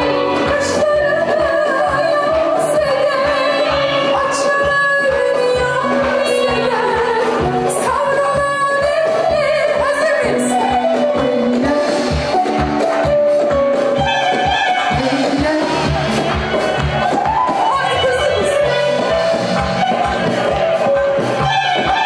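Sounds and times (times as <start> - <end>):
woman singing into a microphone: 0.0 - 12.6, 14.0 - 16.2, 17.5 - 20.0, 21.4 - 22.0
hand drums: 10.7 - 22.0
clarinet: 14.0 - 15.2.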